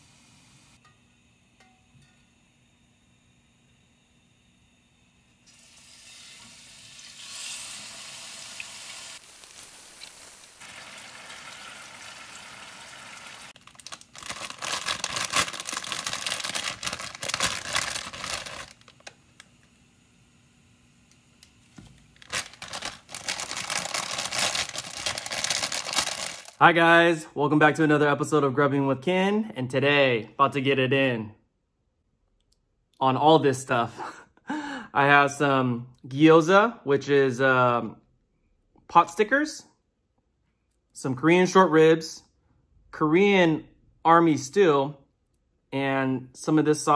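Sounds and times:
water boiling in a pot: 5.3 - 13.8
meat sizzling in a pan: 5.5 - 13.6.

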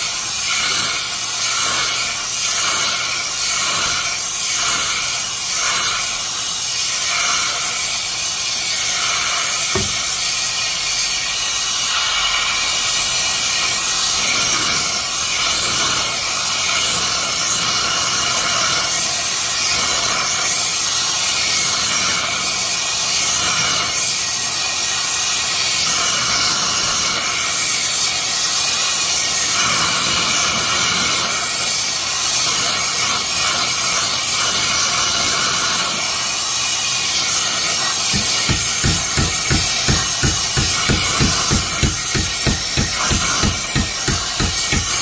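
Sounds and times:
torch flame hissing: 0.0 - 45.0.

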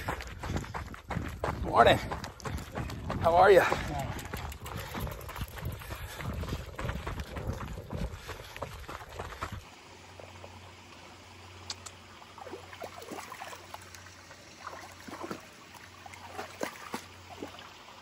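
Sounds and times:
footsteps on trail: 0.0 - 9.8
creek trickling over rocks: 1.7 - 18.0
dog splashing through water: 12.4 - 13.9, 14.6 - 17.7.

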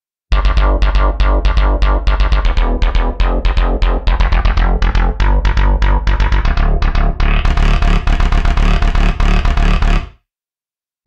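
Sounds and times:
deep held synth bass: 0.3 - 10.1.

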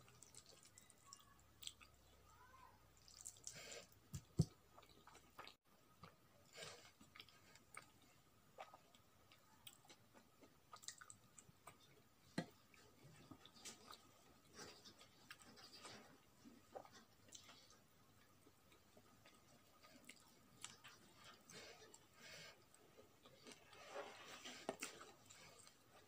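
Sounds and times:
person chewing rice: 0.0 - 2.2, 3.0 - 26.0.

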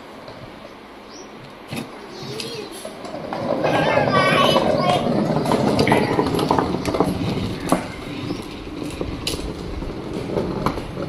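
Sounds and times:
plastic wheels rolling on pavers: 1.7 - 11.0.

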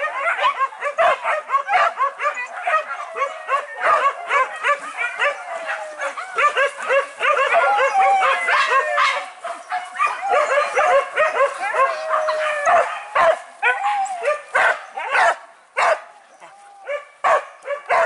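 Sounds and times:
dogs yelping and barking: 0.0 - 18.0
dogs whining: 7.2 - 9.0.

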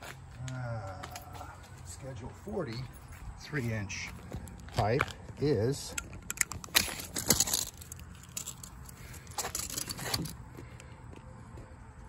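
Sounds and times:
tape measure clicks and rustles: 4.8 - 10.4.

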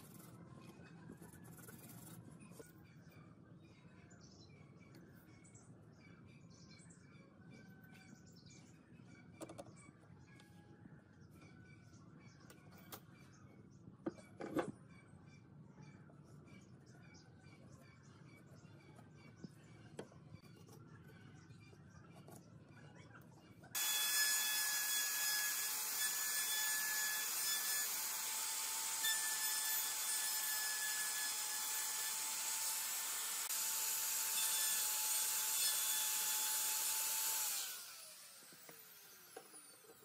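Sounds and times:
electric router whining: 23.8 - 40.0.

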